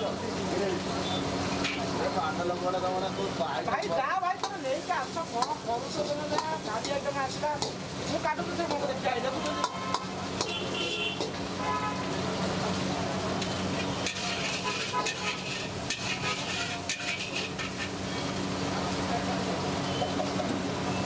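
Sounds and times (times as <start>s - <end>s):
food sizzling in hot oil: 0.0s - 21.0s
metal ladle scraping pan: 13.7s - 18.3s.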